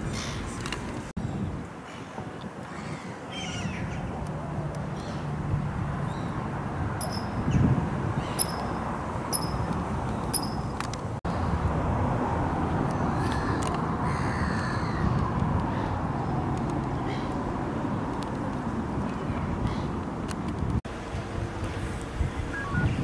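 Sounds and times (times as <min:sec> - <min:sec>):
high-pitched bird chirps: 0:07.0 - 0:07.6, 0:08.2 - 0:10.7.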